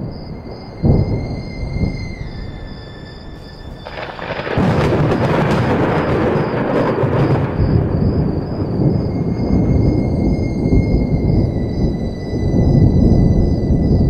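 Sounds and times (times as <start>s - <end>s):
heavy rain: 0.0s - 14.0s
thunder crackling and rumbling: 0.0s - 14.0s.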